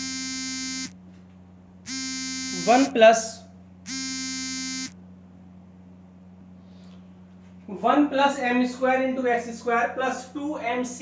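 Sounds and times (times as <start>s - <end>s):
electronic buzzer beeping: 0.0s - 1.0s, 1.9s - 3.0s, 3.9s - 5.0s
steady electrical hum: 0.0s - 11.0s.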